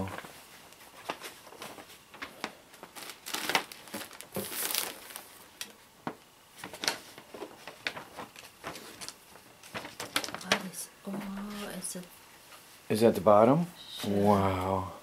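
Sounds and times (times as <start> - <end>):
paper and plastic wrapping crinkling: 0.0 - 11.9.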